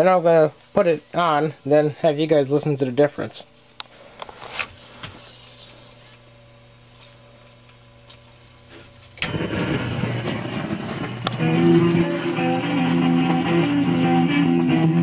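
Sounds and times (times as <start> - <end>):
jukebox humming: 0.0 - 15.0
record music playing: 9.4 - 15.0.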